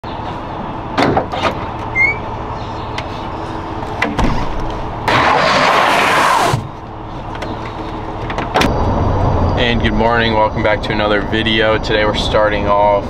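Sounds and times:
harsh rushing scraping noise: 5.1s - 6.6s.

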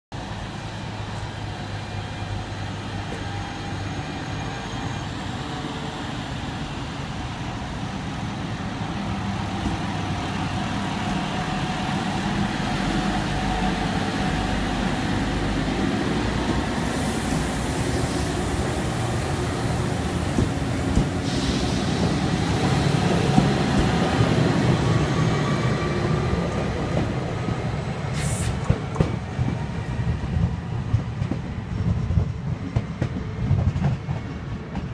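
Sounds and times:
train running hum: 0.2s - 34.9s
burst of hiss: 16.8s - 18.7s, 21.0s - 22.2s, 28.1s - 28.6s.

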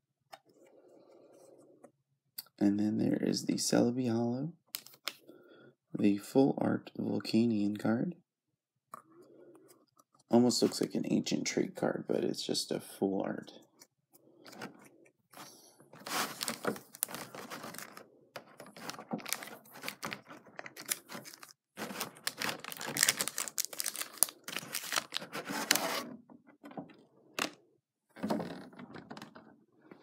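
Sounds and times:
foil wrappers crinkling: 15.4s - 25.8s.

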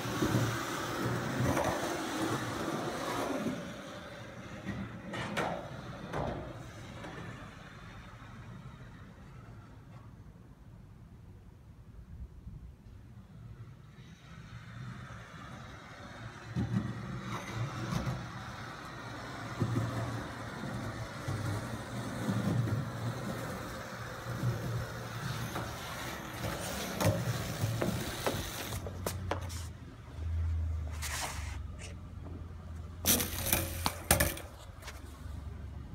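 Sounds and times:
skateboard clacks: 0.0s - 7.4s, 15.6s - 29.6s, 33.1s - 35.1s
skateboard wheels rolling on concrete: 0.0s - 35.9s.

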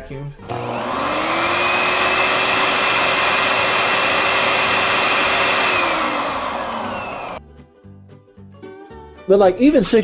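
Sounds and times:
vacuum cleaner motor running: 0.4s - 7.4s.

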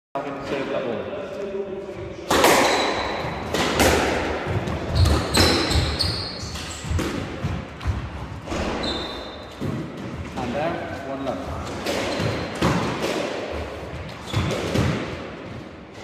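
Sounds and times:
sneakers squeaking on floor: 2.1s - 10.5s, 11.4s - 15.1s
squash ball hits: 2.2s - 10.3s, 11.7s - 15.3s.

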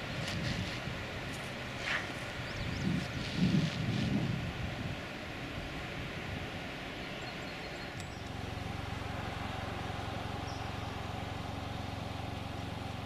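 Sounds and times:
wind: 0.0s - 13.0s
car engine idling: 7.7s - 13.0s.

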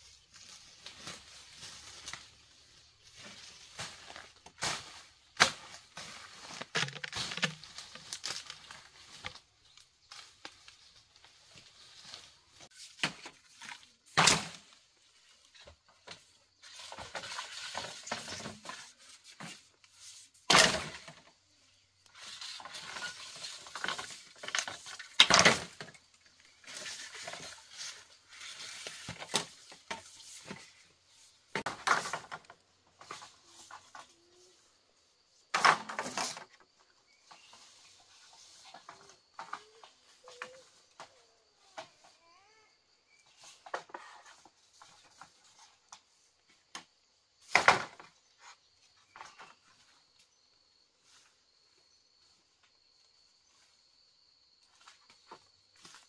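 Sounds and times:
leaves and stalks rustling: 0.0s - 46.8s, 47.4s - 56.0s
bamboo poles knocking together: 3.1s - 14.8s, 20.5s - 21.3s, 22.1s - 30.9s, 35.5s - 36.6s, 46.7s - 48.2s.

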